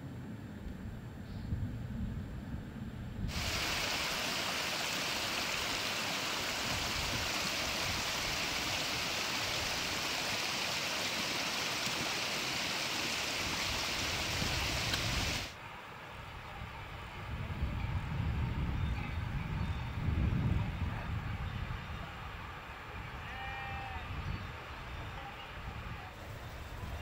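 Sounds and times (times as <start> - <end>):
running water rushing: 3.3 - 15.6.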